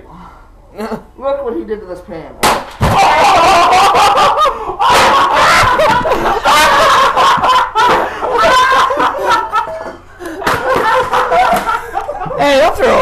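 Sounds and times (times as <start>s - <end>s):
men laughing loudly: 2.8s - 13.0s.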